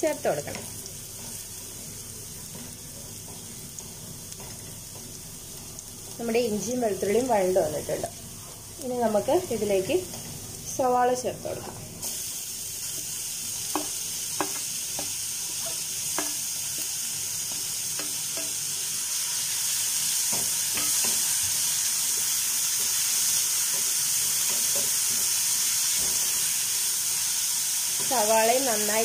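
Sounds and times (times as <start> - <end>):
onions sizzling in frying pan: 0.0 - 29.0
spatula tapping and scraping pan: 0.5 - 5.9, 13.7 - 18.6, 20.3 - 21.3, 23.7 - 25.4.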